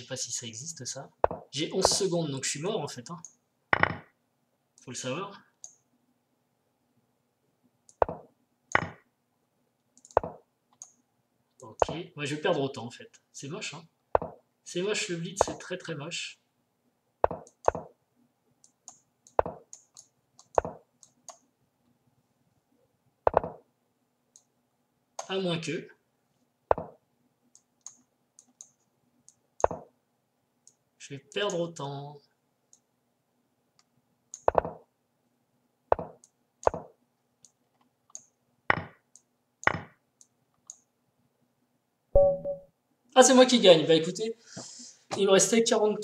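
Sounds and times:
chess piece wooden knocks: 1.2 - 2.1, 17.2 - 17.9, 20.6 - 20.8, 23.3 - 23.6, 34.4 - 34.8, 35.9 - 36.9, 38.7 - 39.0
computer mouse clicks: 5.6 - 5.8, 10.0 - 11.0, 17.2 - 18.0, 18.6 - 21.5, 26.7 - 29.9, 33.8 - 34.8, 35.9 - 38.4, 39.1 - 40.9.

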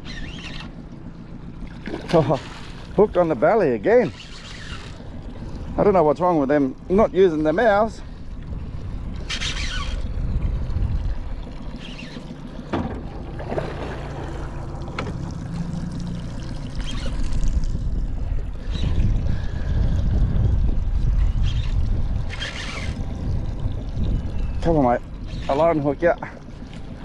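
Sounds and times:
water splashing and lapping: 0.0 - 27.0
wind buffeting microphone: 4.8 - 11.8, 16.3 - 26.2
sharp knocks: 12.7 - 13.2.

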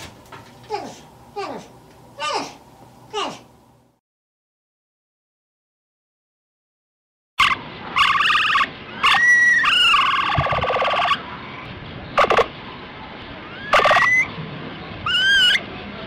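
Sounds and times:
capybara buzzy calls: 7.4 - 11.2, 12.2 - 12.6, 13.5 - 14.3, 15.0 - 15.7
capybara rattling call: 7.4 - 11.2, 12.2 - 12.5, 13.6 - 14.3, 15.1 - 15.6
thin rising whistles: 13.4 - 14.4.

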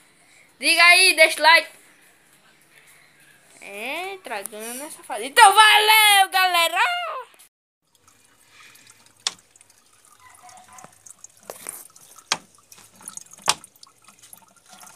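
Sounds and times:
sharp drips: 7.8 - 14.9
water dripping and trickling: 7.8 - 14.9.

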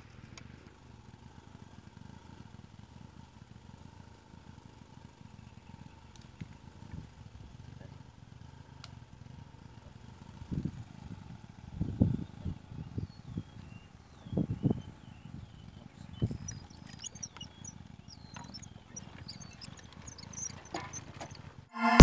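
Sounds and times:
faint clicks: 16.2 - 21.5.

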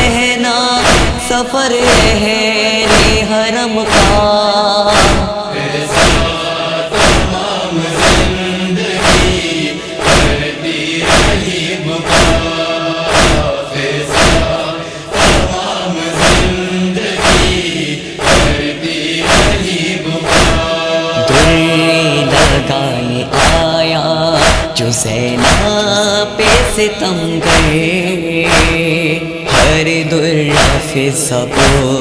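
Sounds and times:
chorus of voices singing: 0.0 - 32.0
hands beating on chest: 13.1 - 13.5.

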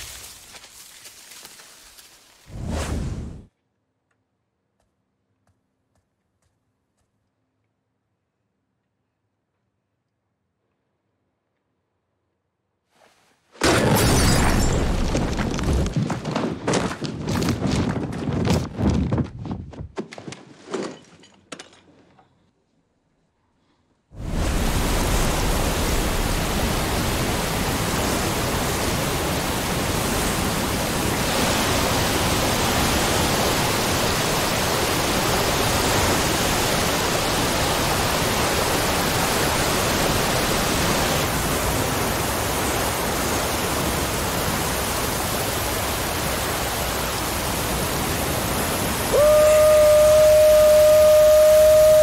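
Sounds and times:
waterfall rushing: 24.2 - 52.0.

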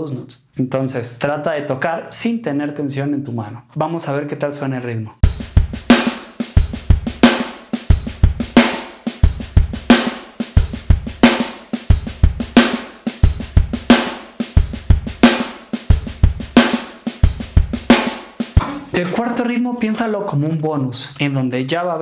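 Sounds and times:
electronic drum kit groove: 5.2 - 20.5.

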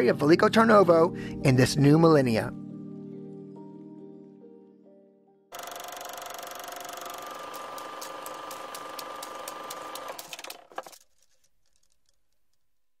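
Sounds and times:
mechanical projector rattle: 5.6 - 12.5
mechanical clicks: 5.6 - 12.6.

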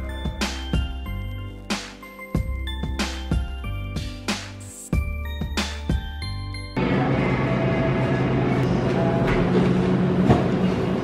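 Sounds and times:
background music with steady beat: 0.0 - 6.8.

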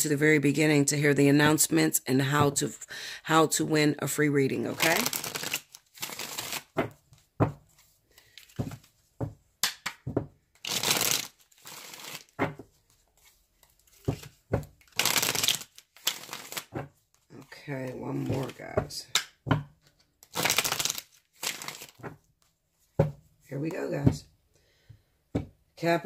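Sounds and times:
cards being shuffled: 4.7 - 22.5
card snaps: 9.6 - 10.0.

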